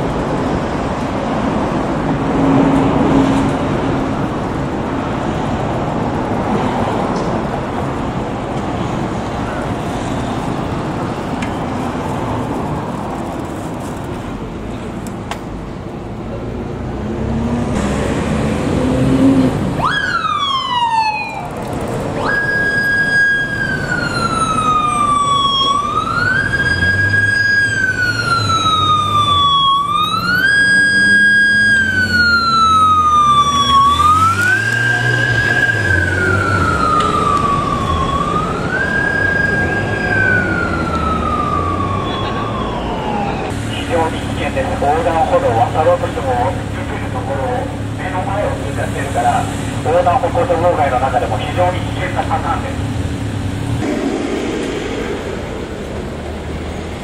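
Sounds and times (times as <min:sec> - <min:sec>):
police siren wailing: 0:19.7 - 0:52.9, 0:53.7 - 0:57.0
motorcycle engine: 0:52.8 - 0:57.0.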